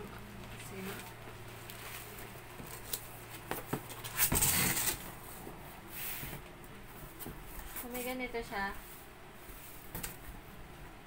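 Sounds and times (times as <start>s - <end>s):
cardboard flaps scraping rustle: 1.6s - 8.2s.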